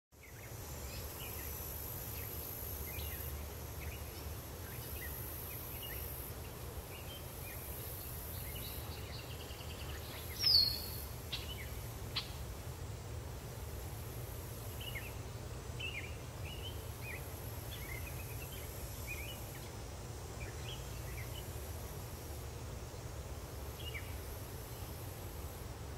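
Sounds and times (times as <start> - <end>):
small birds chirping: 0.2 - 12.5, 14.3 - 21.7
low steady hum: 0.2 - 25.9
steady high hiss: 0.2 - 25.9.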